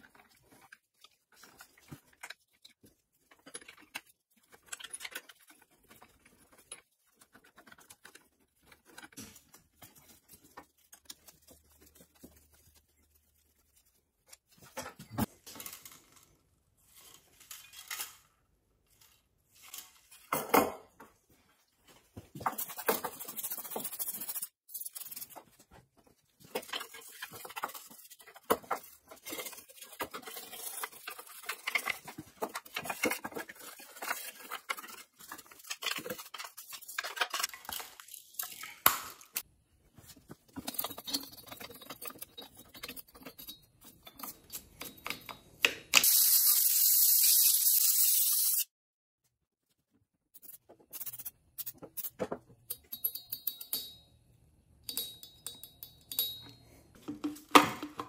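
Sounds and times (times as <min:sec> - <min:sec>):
parts knocking and rattling: 0:22.0 - 0:46.0
brisk scrubbing and brushing: 0:22.5 - 0:25.7
clicks and clinks: 0:52.7 - 0:54.1, 0:54.8 - 0:56.8.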